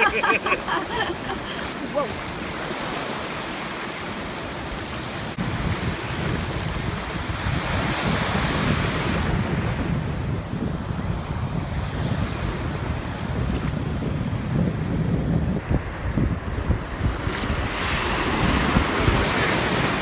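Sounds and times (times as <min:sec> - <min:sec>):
small waves breaking: 0:00.0 - 0:09.5
wind buffeting microphone: 0:04.4 - 0:20.0.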